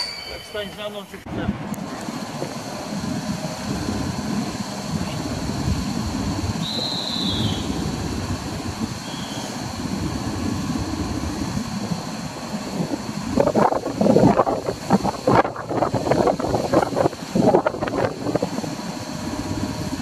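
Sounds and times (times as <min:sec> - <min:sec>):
short high whistle: 0:00.0 - 0:00.7, 0:06.6 - 0:07.8, 0:09.0 - 0:09.6
locomotive rumbling: 0:00.0 - 0:20.0.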